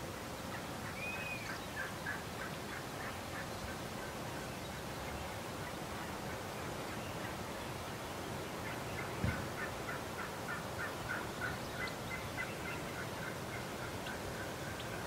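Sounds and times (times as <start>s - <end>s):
wild turkeys calling: 0.5s - 4.1s, 8.6s - 15.0s.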